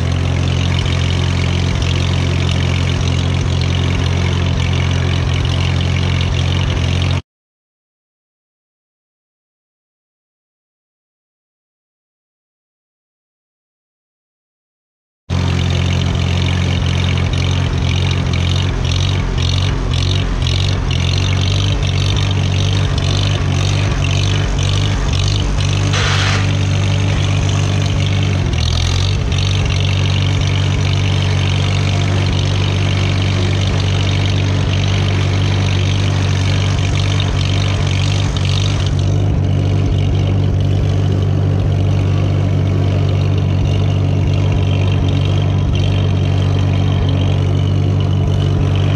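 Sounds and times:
tractor engine running: 0.0s - 7.2s, 15.3s - 48.9s
rapid rattling clatter: 15.4s - 40.8s
short hiss: 26.0s - 26.6s.

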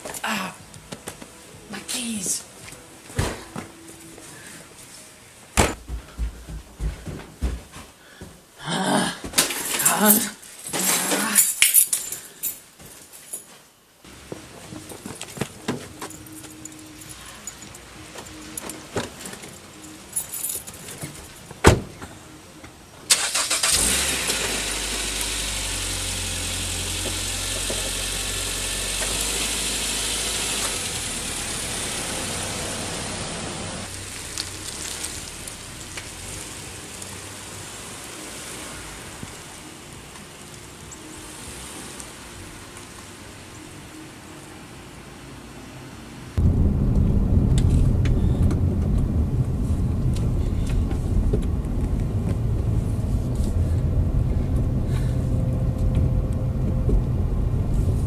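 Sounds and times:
car engine starting and running: 23.1s - 39.7s, 46.4s - 58.0s.

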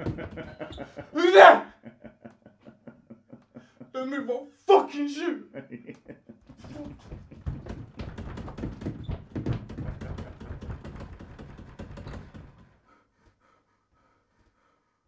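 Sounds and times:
door rattling and knocking: 0.0s - 1.2s, 6.4s - 12.8s.

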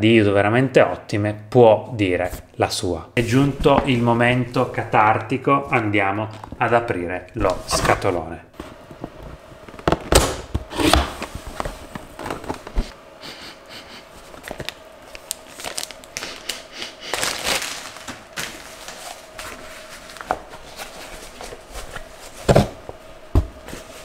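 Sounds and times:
plastic bag crinkling: 14.4s - 21.4s.

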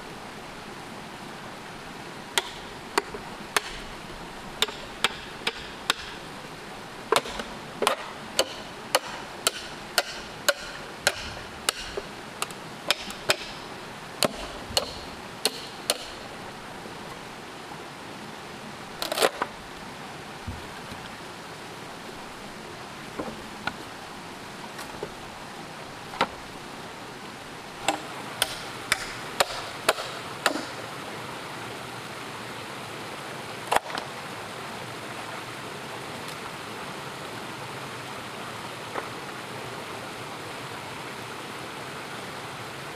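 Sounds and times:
background hiss: 0.0s - 42.9s
hand tool striking wood: 2.4s - 3.9s, 4.6s - 6.2s, 7.1s - 13.6s, 14.2s - 16.2s, 27.8s - 30.8s.

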